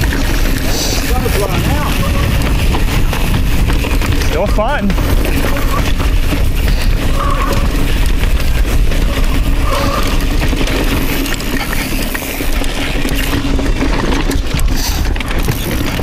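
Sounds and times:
wind rushing on microphone: 0.0s - 10.8s
bike tyres rattling on rocks: 0.0s - 16.0s.

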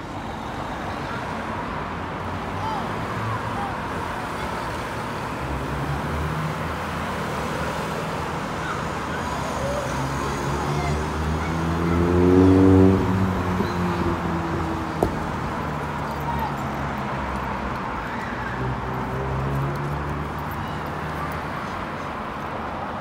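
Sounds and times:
road traffic passing: 0.0s - 23.0s
vehicle engine passing close: 9.5s - 15.6s.

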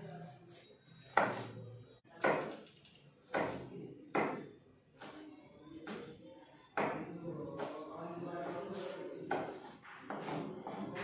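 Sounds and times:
knife chopping on plastic board: 1.1s - 1.5s, 2.1s - 2.6s, 3.2s - 5.2s, 6.8s - 7.8s.

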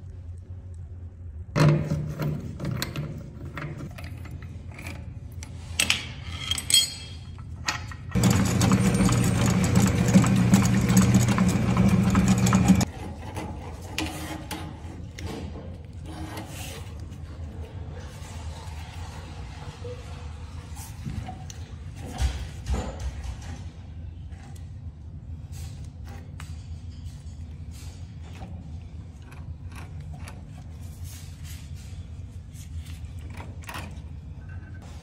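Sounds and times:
drain cleaning machine running: 8.1s - 12.9s.

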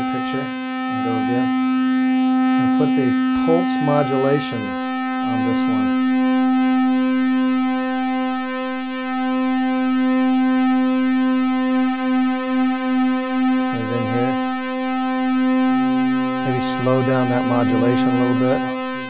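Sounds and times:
synthesizer pulse-wave tone: 0.0s - 19.0s.

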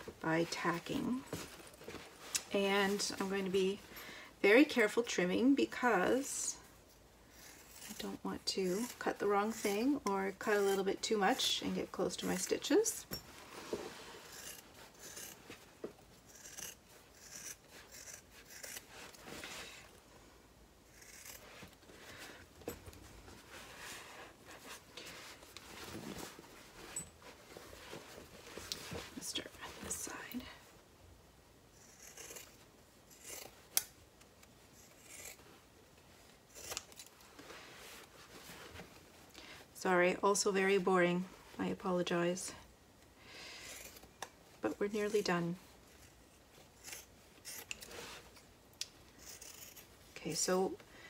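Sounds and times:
fabric rustling: 0.0s - 4.0s, 17.7s - 20.4s, 21.4s - 30.8s, 34.6s - 39.7s.

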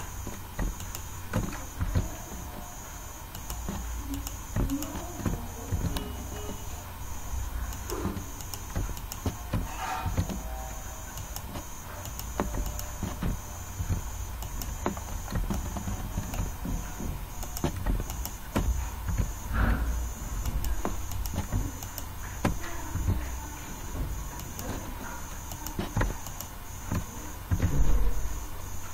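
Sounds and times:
faint high whine: 0.0s - 28.9s
steady low hum: 0.0s - 28.9s
keyboard key taps: 3.3s - 6.7s.

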